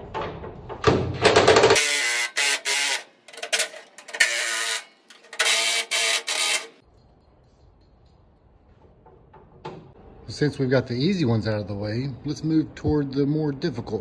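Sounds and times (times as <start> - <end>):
cordless impact driver: 1.3 - 3.1, 4.2 - 6.7.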